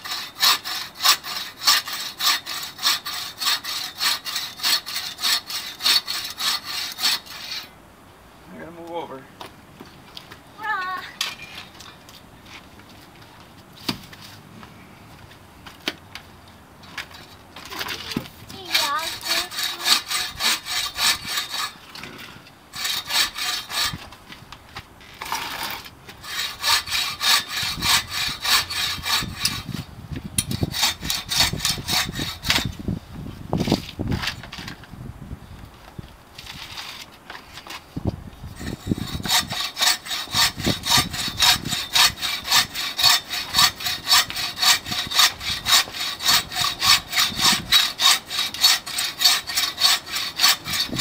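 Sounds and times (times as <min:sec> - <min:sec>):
buck saw cutting log: 0:00.0 - 0:07.7, 0:18.5 - 0:22.2, 0:22.8 - 0:24.0, 0:25.2 - 0:29.8, 0:30.5 - 0:32.7, 0:38.6 - 0:51.0.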